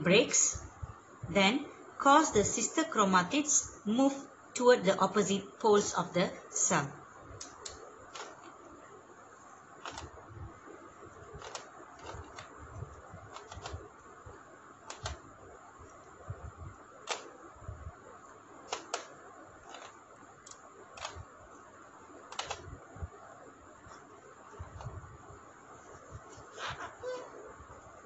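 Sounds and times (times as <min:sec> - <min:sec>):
plastic pieces clicking and tapping: 0:18.7 - 0:19.1.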